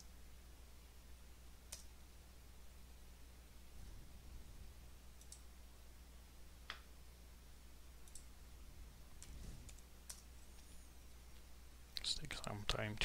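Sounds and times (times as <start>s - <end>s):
low steady hum: 0.0s - 13.0s
computer mouse clicks: 1.7s - 1.9s, 5.2s - 5.5s, 8.0s - 8.3s, 9.2s - 10.7s.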